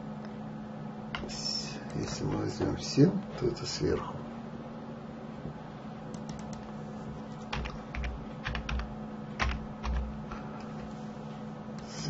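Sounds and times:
steady low hum: 0.0s - 12.0s
typing on computer keyboard: 6.2s - 6.7s, 7.5s - 10.4s.

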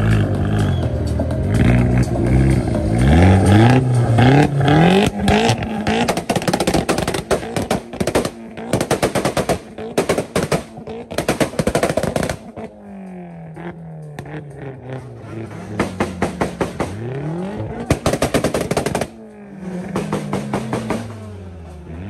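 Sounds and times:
car engine revving: 0.0s - 22.0s
exhaust pops and bangs: 4.9s - 12.8s, 13.6s - 19.2s, 19.8s - 21.3s.

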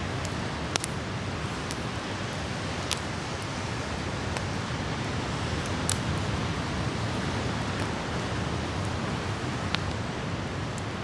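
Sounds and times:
campfire crackling: 0.0s - 11.0s
fire popping: 0.0s - 11.0s
ocean surf: 0.0s - 11.0s.

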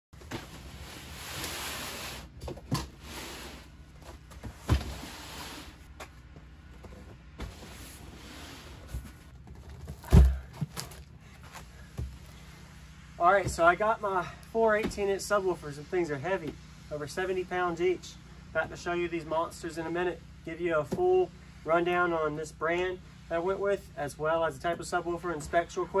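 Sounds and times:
cardboard scraping on table: 0.2s - 5.9s
boxes thumping on table: 9.8s - 11.0s.

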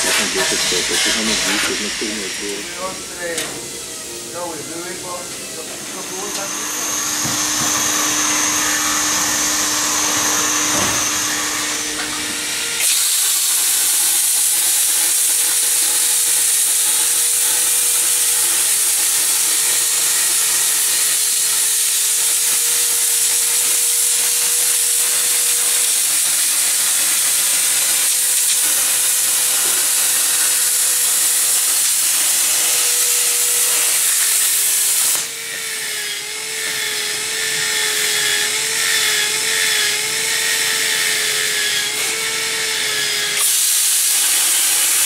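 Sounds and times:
plasma cutter air hiss: 0.0s - 3.7s, 12.8s - 35.3s, 43.4s - 45.0s.

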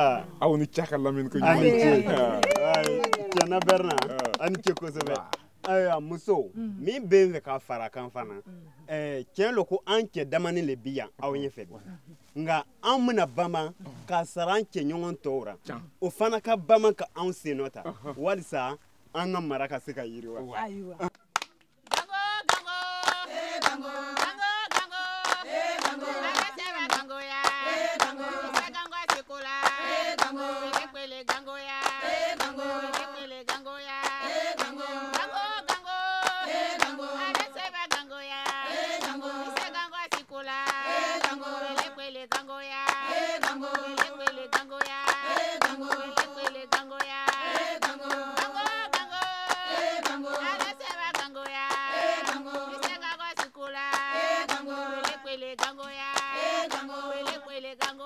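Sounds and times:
hand-clapping rhythm: 1.8s - 6.0s, 21.0s - 58.0s
people singing: 21.9s - 58.0s.

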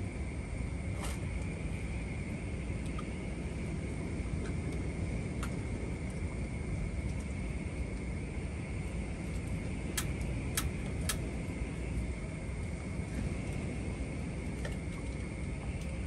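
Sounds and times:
low outdoor rumble: 0.0s - 16.0s.

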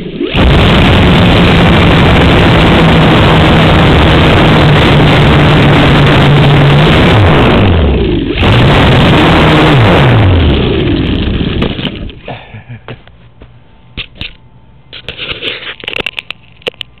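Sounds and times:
electric motor and propeller whine: 0.0s - 11.6s.

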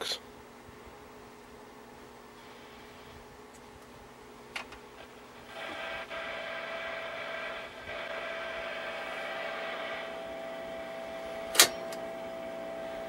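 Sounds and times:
television speaker buzz: 4.9s - 13.0s
sharp click: 11.5s - 12.0s.

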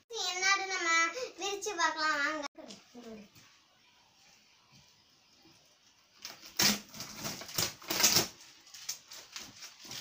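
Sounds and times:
packing tape ripping off cardboard: 6.2s - 10.0s
tape and cardboard rustling: 6.2s - 10.0s.

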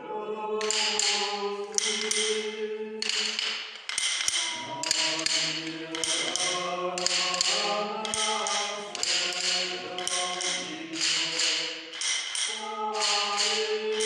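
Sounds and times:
slow church music: 0.0s - 14.0s
rattling noise bursts: 3.0s - 14.0s.

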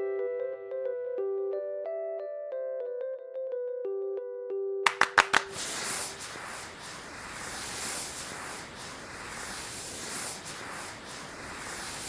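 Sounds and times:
sparkler fizzing: 4.9s - 12.0s.

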